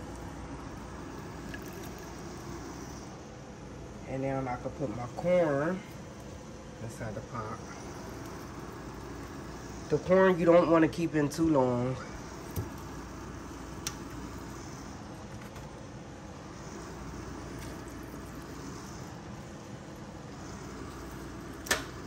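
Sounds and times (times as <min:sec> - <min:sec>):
kitchen background hum: 0:00.0 - 0:22.0.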